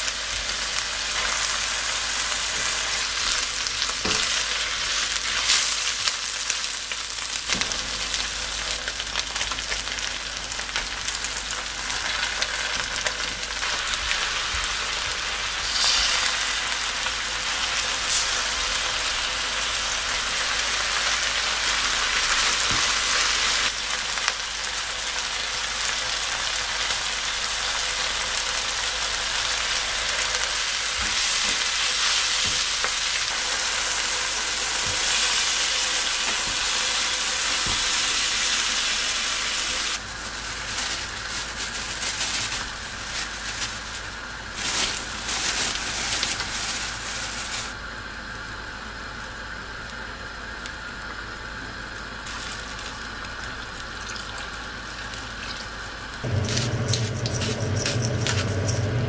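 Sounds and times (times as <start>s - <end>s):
food sizzling in frying pan: 0.0s - 47.8s, 52.2s - 59.0s
spatula scraping and knocking pan: 56.3s - 59.0s.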